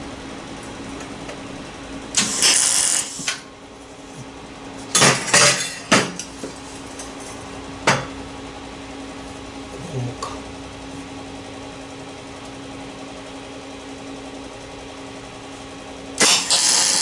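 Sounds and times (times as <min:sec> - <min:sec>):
welder arc crackling and hissing: 0:01.7 - 0:04.2, 0:16.2 - 0:17.0.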